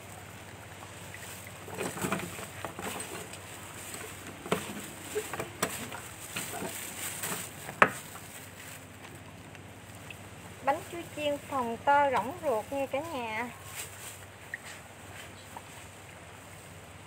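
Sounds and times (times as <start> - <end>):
oil crackling and popping: 0.7 - 13.1.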